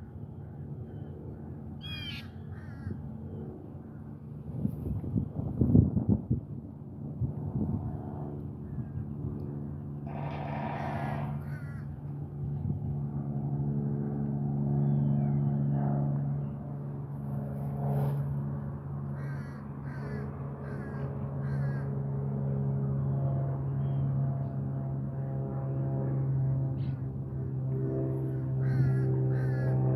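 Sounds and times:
steady low hum: 0.0 - 29.9
harsh bird calls: 1.8 - 2.9.

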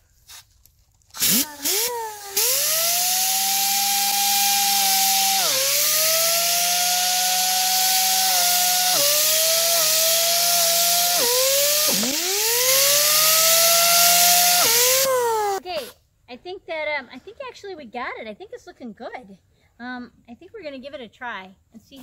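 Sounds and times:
pneumatic disc sander whining: 1.2 - 15.6.

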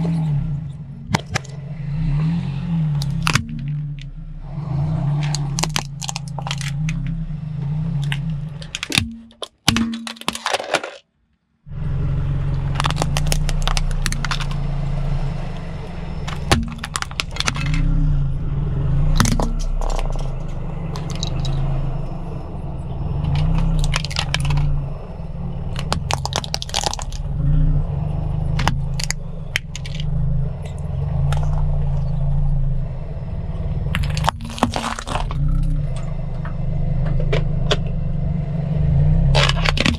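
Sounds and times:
car engine idling: 0.0 - 39.9
tyre crushing plastic toys: 3.0 - 4.1, 5.2 - 7.2, 8.0 - 11.1, 12.6 - 14.6, 16.3 - 17.9, 19.2 - 21.6, 23.2 - 24.8, 25.7 - 27.3, 28.6 - 31.7, 33.9 - 36.0, 39.3 - 39.9.

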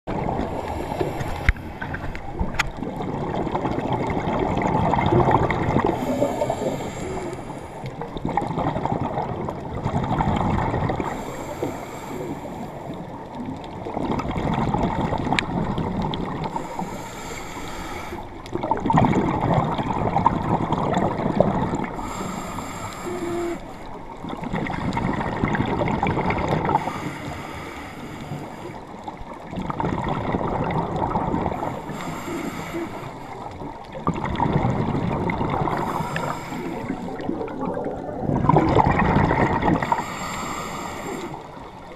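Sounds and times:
regulator hissing inhale: 0.5 - 1.8, 5.9 - 7.9, 11.0 - 12.9, 16.5 - 18.4, 21.9 - 24.0, 26.8 - 29.0, 31.6 - 33.5, 35.7 - 37.2, 39.8 - 41.6
bubbling exhale underwater: 2.7 - 11.5, 12.8 - 16.9, 18.5 - 27.6, 29.4 - 41.9.

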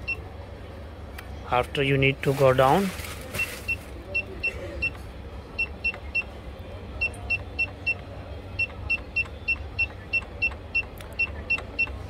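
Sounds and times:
cash register keypad beeps: 7.0 - 8.0, 8.6 - 12.0.

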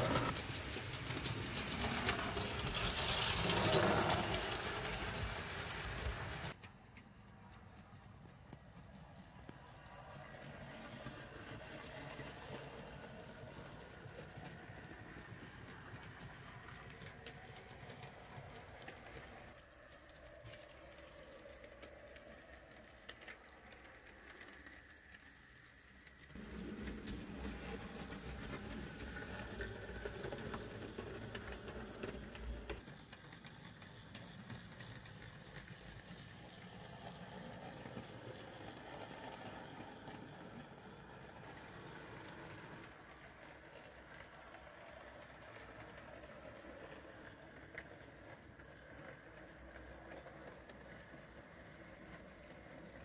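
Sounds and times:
model train motor whirring: 0.0 - 6.6, 8.9 - 53.0
coaches clicking over rail joints: 26.0 - 53.0.

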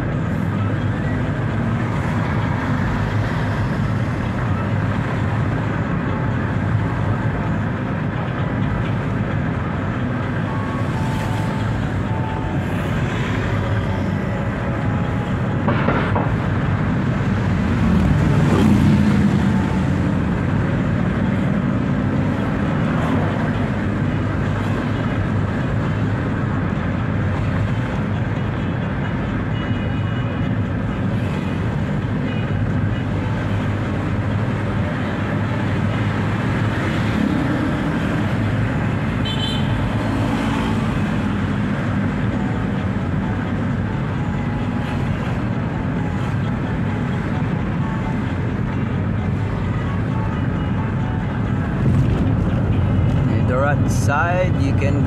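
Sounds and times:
road and engine noise in car: 0.0 - 55.0
high-pitched tone: 10.0 - 15.7.

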